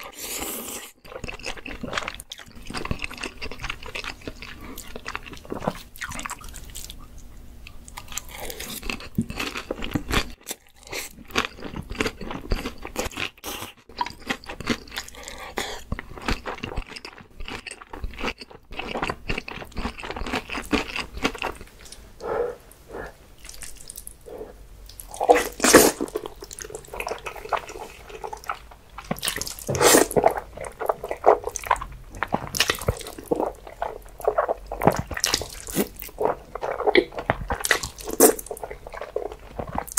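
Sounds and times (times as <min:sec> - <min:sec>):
crisp fried food crunching: 0:07.9 - 0:15.2, 0:15.8 - 0:22.0, 0:24.8 - 0:39.9
noodles chewed and slurped: 0:25.0 - 0:39.9.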